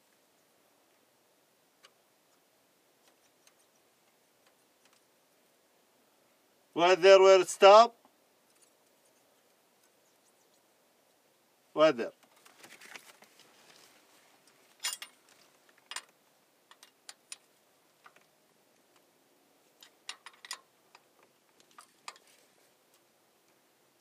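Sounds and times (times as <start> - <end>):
wrench clicking on metal: 19.8 - 21.0.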